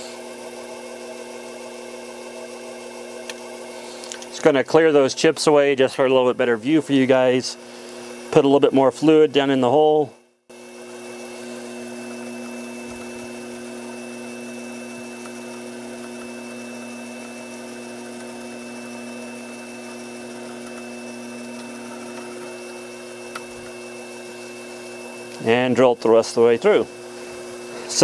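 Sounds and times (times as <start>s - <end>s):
mill spindle motor whining: 0.0s - 28.0s
drill feeding into metal: 10.5s - 28.0s.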